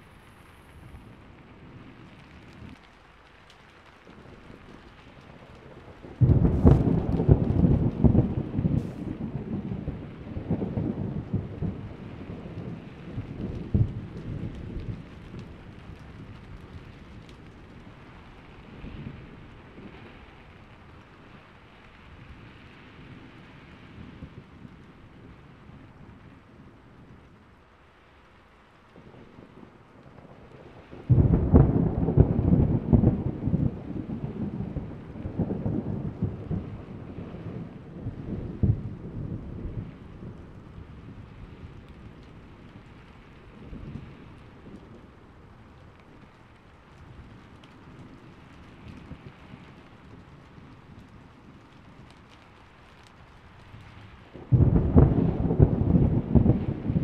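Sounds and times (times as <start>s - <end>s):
rain hissing: 0.0s - 57.0s
thunder rolling: 4.1s - 20.6s, 29.0s - 46.4s, 53.8s - 57.0s.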